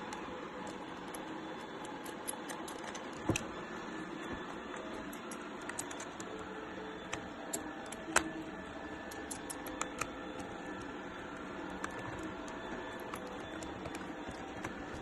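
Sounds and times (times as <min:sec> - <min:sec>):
screwdriver clicking in plastic: 0:00.1 - 0:03.5, 0:04.3 - 0:15.0.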